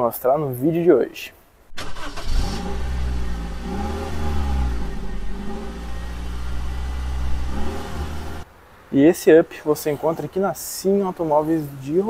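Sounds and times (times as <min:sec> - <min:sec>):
car engine revving: 0:01.7 - 0:08.5.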